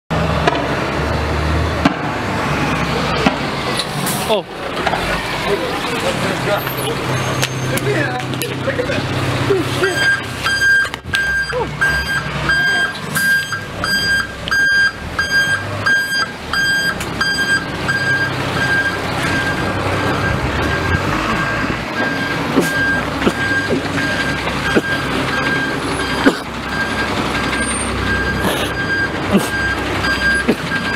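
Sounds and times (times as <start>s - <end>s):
low engine rumble: 0.1s - 30.9s
vehicle reversing alarm beeping: 9.8s - 30.9s.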